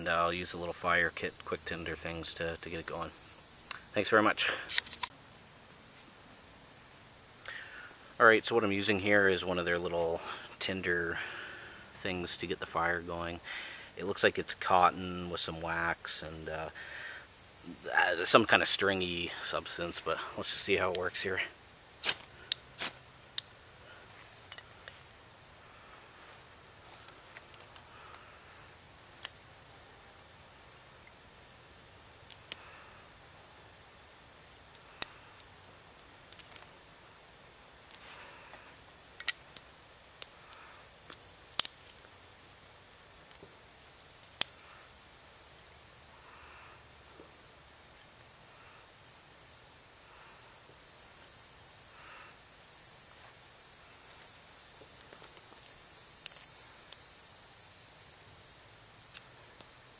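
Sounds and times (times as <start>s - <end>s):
insects chorus: 0.0s - 59.9s
twigs snapping and clicking: 34.7s - 36.7s, 39.2s - 42.0s.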